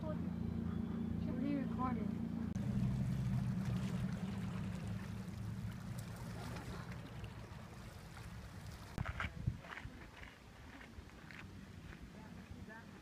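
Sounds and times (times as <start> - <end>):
motor engine droning: 0.0 - 8.7.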